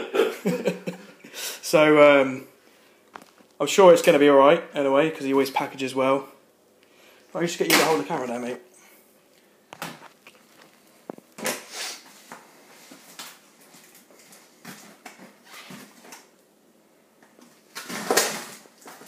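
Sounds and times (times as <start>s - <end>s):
tape ripping: 17.7s - 19.0s.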